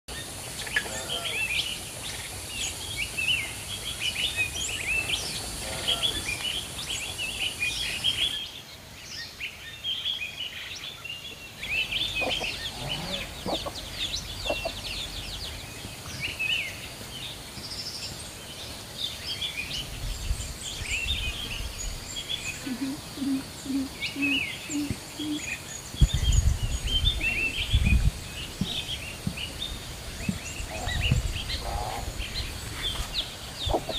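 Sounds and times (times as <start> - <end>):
insect hiss: 0.1 - 33.9
small birds chirping: 0.1 - 33.9
hen clucking: 5.5 - 6.2, 12.0 - 15.2, 22.6 - 25.4, 33.6 - 33.9
chicks peeping: 11.9 - 15.5, 26.0 - 33.9.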